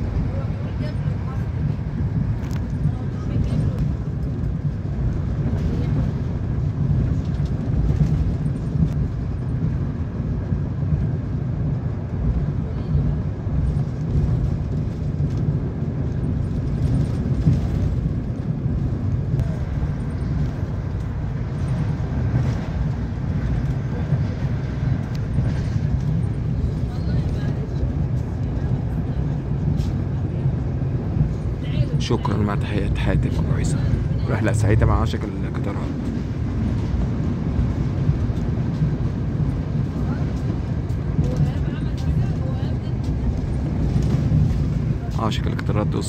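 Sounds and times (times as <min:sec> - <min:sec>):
train wheels rumbling on rails: 0:00.0 - 0:46.0.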